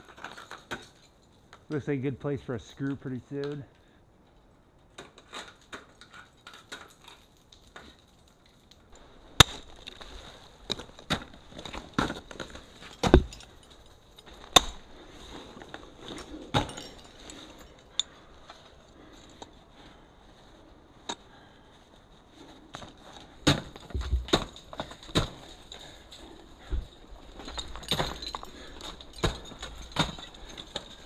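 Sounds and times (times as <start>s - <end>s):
ice axes chopping into ice: 9.4s - 13.5s, 23.4s - 25.9s, 27.4s - 31.0s
clinks of gear: 24.0s - 31.0s.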